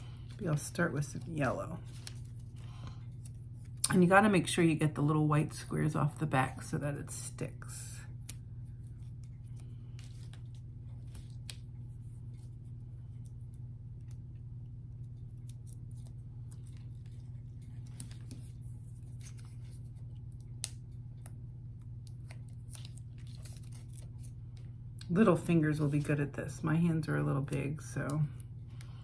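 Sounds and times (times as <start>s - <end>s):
low hum: 0.0s - 29.0s
paper backing peeling crackles: 0.1s - 4.1s, 8.1s - 26.2s.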